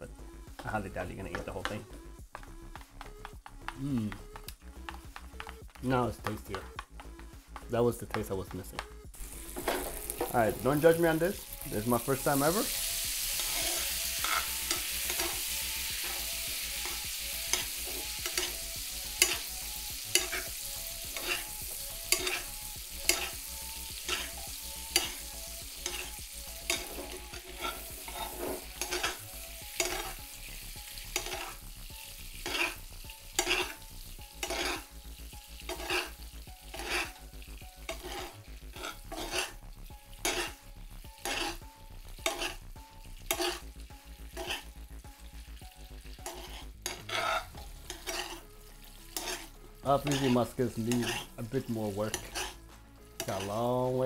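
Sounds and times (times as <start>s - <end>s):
food sizzling in a frying pan: 9.0s - 54.0s
metal spoon clinking on pan: 16.8s - 18.6s, 19.2s - 21.5s, 22.1s - 25.2s, 25.8s - 30.2s, 31.1s - 31.6s, 32.4s - 33.8s, 34.4s - 34.9s, 35.7s - 37.2s, 37.9s - 39.6s, 40.2s - 40.6s, 42.2s - 42.6s, 43.3s - 43.6s, 44.4s - 44.6s, 46.2s - 48.4s, 49.2s - 51.3s, 53.2s - 53.5s.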